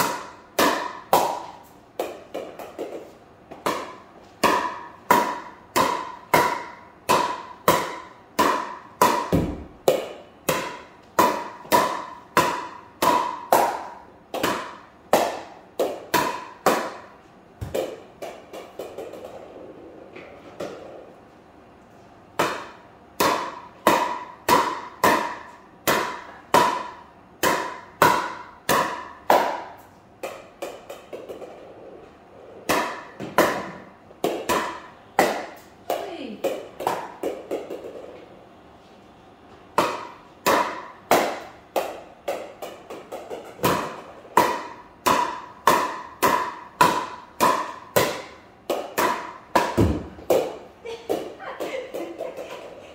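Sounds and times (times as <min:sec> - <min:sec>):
paddle hitting plastic ball: 0:00.0 - 0:19.6, 0:22.4 - 0:31.7, 0:32.6 - 0:38.1, 0:39.8 - 0:52.8
ball bouncing: 0:00.0 - 0:21.0, 0:32.6 - 0:38.2, 0:39.8 - 0:52.9.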